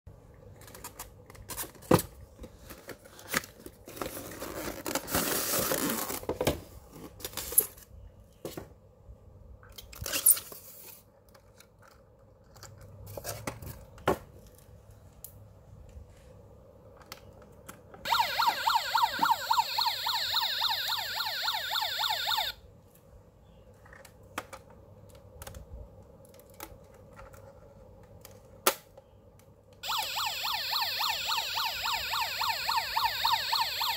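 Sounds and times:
tinny electronic toy siren: 18.1s - 22.6s, 29.8s - 33.9s.

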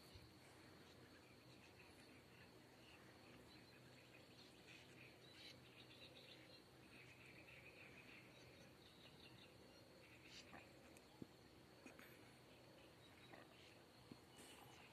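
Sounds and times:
swallows twittering: 0.0s - 14.9s.

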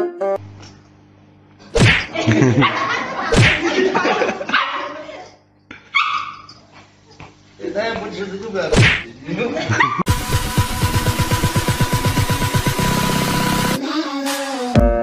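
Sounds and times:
small dog barking: 4.5s - 5.2s, 5.9s - 6.5s.

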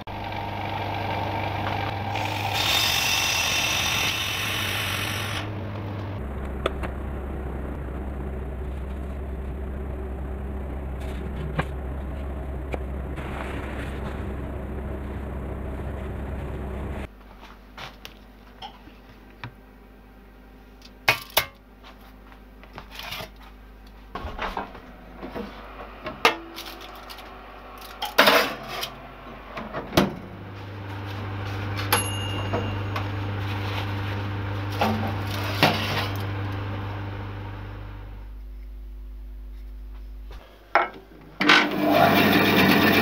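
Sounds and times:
oven electrical hum: 0.0s - 43.0s
short metallic ring: 31.9s - 33.1s.

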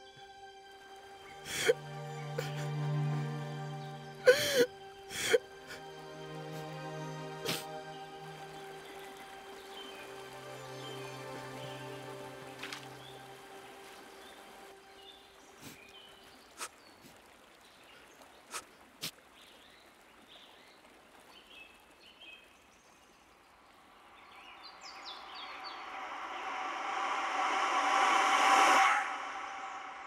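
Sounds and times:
high bird chirps: 24.2s - 26.9s
broad rushing noise: 24.7s - 30.0s.

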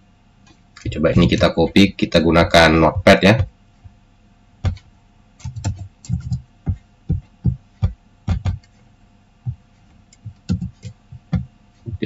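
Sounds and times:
keyboard keystrokes: 4.6s - 6.4s.

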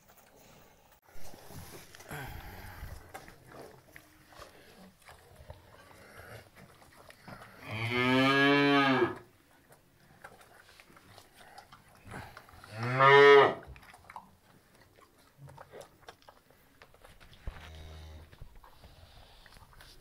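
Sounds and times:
calf mooing: 7.6s - 9.2s, 12.7s - 13.6s.

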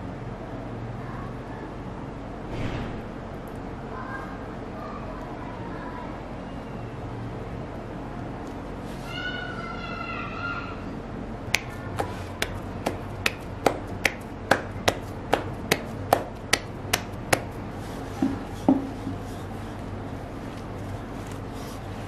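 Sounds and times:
dough slapped between palms: 11.5s - 17.6s.

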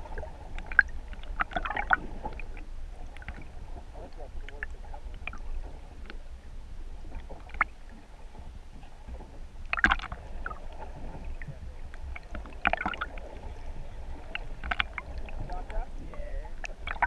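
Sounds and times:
muffled underwater rumble: 0.0s - 17.0s
underwater clicks: 0.5s - 3.5s, 4.4s - 6.2s, 7.2s - 7.8s, 9.6s - 10.8s, 11.4s - 13.5s, 14.2s - 15.8s, 16.5s - 17.0s.

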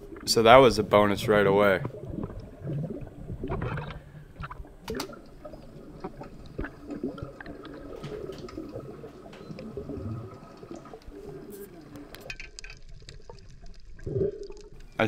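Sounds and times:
water sloshing and gurgling: 0.0s - 15.0s
sharp clicks and knocks: 3.6s - 5.2s.

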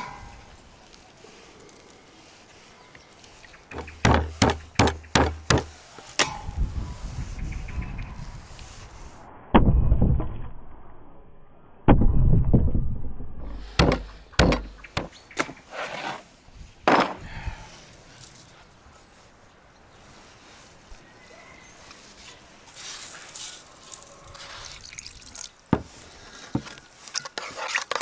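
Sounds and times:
meat pounded on wooden board: 4.0s - 5.7s.

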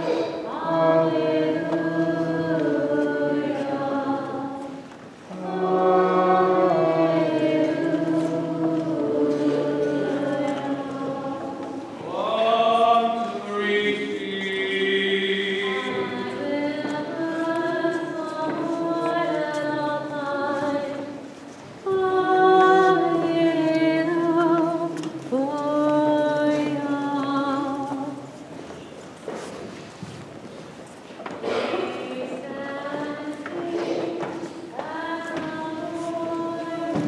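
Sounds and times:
group chanting a hymn: 0.0s - 28.3s, 31.3s - 37.0s.

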